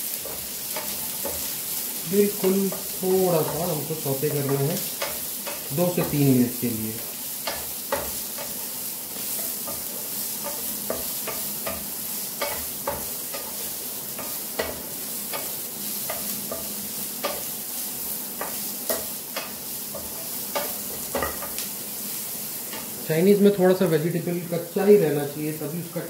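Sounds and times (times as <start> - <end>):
vegetables sizzling in oil: 0.0 - 26.0
spatula scraping pan: 7.0 - 23.0.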